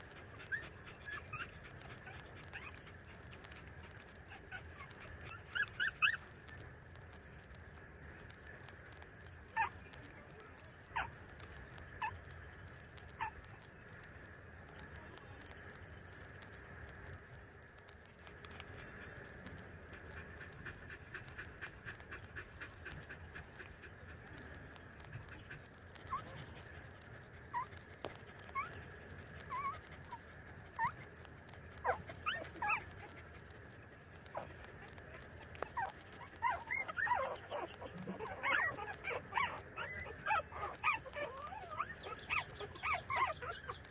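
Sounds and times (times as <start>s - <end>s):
faint steady hum: 0.0s - 43.9s
puppies squeaking: 0.4s - 6.3s, 28.4s - 28.8s, 29.4s - 30.2s, 31.8s - 33.1s, 34.2s - 43.9s.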